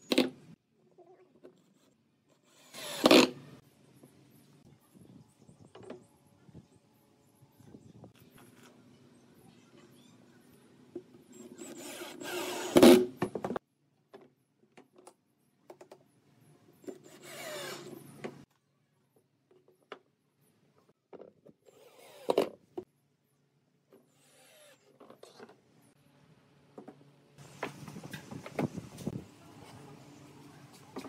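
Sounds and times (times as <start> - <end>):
cordless drill driving screws: 2.5 - 3.3, 11.4 - 13.0, 17.0 - 18.0, 21.7 - 22.5.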